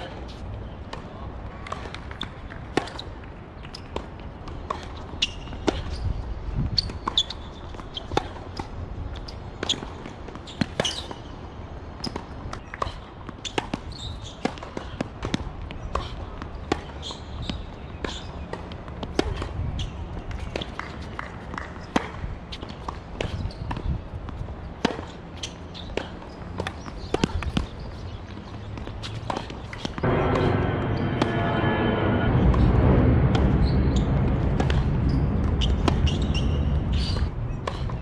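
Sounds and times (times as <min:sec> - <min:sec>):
rackets striking tennis ball: 0:20.2 - 0:30.5
steady low background noise: 0:29.6 - 0:38.0.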